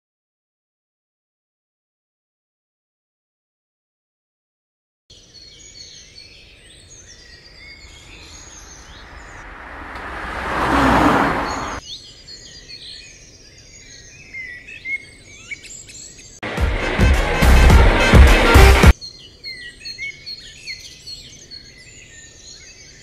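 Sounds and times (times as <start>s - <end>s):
birds chirping: 5.1s - 16.4s.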